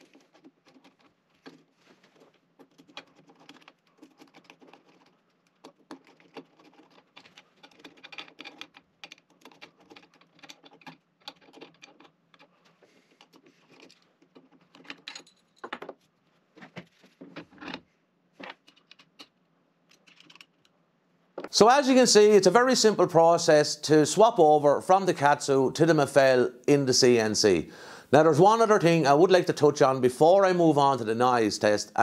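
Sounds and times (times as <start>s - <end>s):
screwdriver clicking and scraping: 0.0s - 15.4s, 18.4s - 20.7s
small metal parts handled: 0.0s - 16.1s, 17.4s - 20.7s
handling noise: 0.0s - 20.7s.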